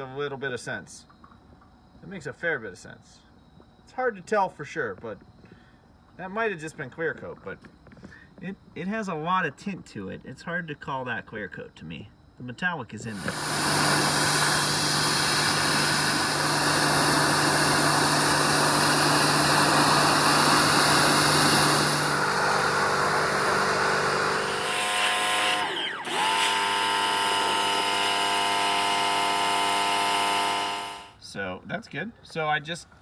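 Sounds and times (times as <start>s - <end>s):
high-pressure water jet hissing: 13.1s - 31.2s
pressure washer pump humming: 13.1s - 31.2s.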